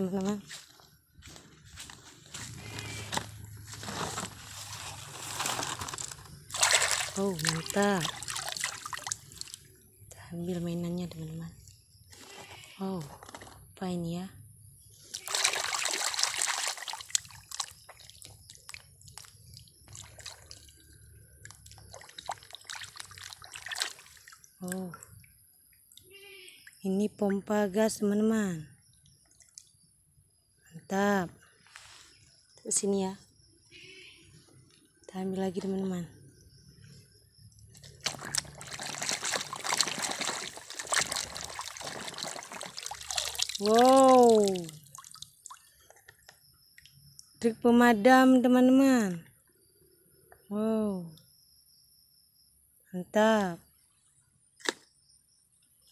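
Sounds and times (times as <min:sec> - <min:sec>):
water splashing and sloshing: 0:00.1 - 0:10.0, 0:15.0 - 0:26.2, 0:37.6 - 0:47.1
water dripping: 0:06.0 - 0:09.8, 0:15.1 - 0:27.5, 0:29.0 - 0:29.7, 0:37.8 - 0:47.4.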